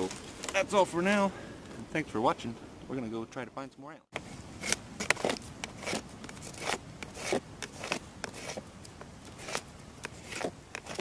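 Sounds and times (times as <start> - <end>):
knife scraping wood: 4.2 - 11.0.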